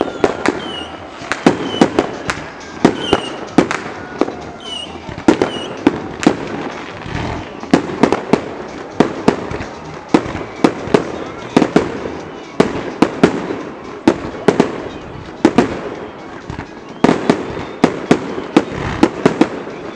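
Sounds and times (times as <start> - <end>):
fireworks bangs: 0.0 - 19.9.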